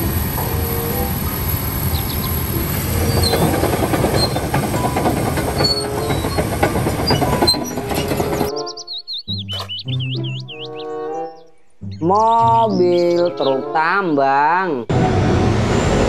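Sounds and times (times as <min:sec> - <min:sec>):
bulldozer diesel rumble: 0:00.0 - 0:08.6
metal clanks and knocks: 0:03.0 - 0:08.6.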